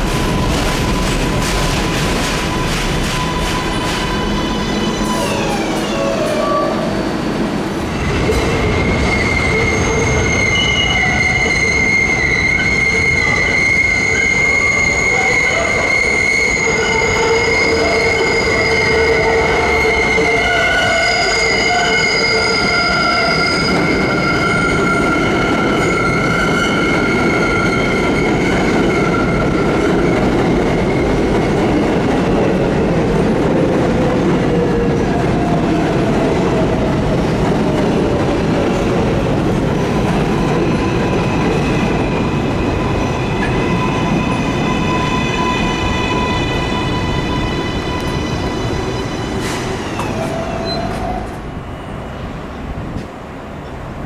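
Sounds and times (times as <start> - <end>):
subway train rumbling past: 0.0 - 54.0
train wheels squealing: 0.2 - 7.0, 8.0 - 31.7, 40.2 - 52.2.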